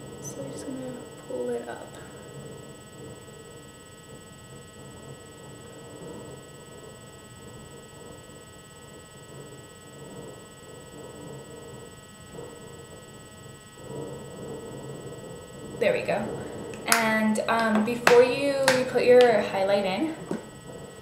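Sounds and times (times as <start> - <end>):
electrical hum: 0.0 - 21.0
low room rumble: 0.0 - 21.0
thin high whine: 0.0 - 21.0.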